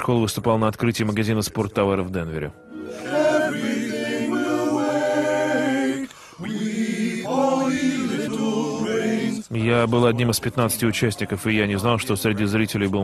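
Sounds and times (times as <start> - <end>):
men's choir singing: 2.8 - 9.5.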